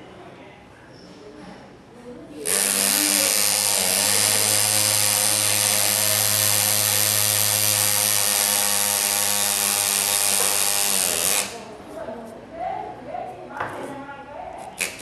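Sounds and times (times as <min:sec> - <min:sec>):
pneumatic engraver buzzing: 0:02.4 - 0:11.7.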